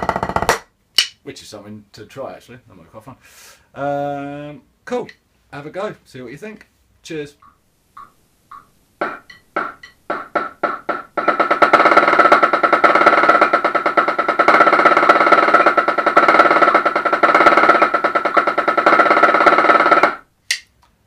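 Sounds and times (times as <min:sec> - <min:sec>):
fast snare drum roll: 0:00.0 - 0:00.6, 0:09.0 - 0:20.3
snare drum strokes: 0:08.0 - 0:20.2.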